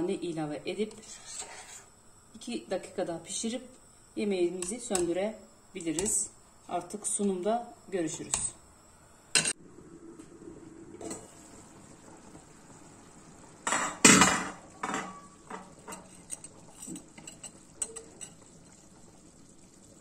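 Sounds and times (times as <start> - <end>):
metal pot lid clattering: 13.7 - 18.4.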